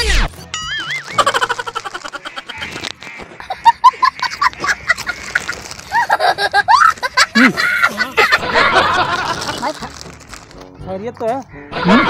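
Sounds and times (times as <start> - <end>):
foil snack packet crinkling: 0.8 - 7.2, 8.8 - 10.7.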